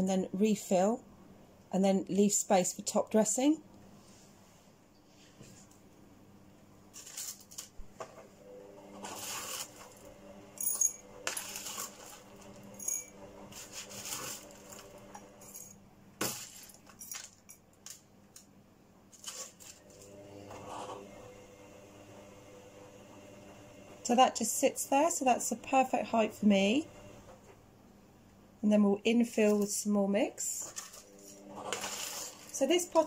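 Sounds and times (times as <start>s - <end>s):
metal spoon scooping gritty soil: 30.7s - 32.8s.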